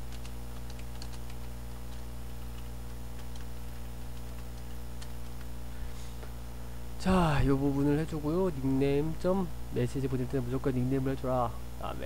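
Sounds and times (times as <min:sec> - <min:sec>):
keyboard typing clicks: 0:00.0 - 0:05.5
electrical mains hum: 0:00.0 - 0:12.0.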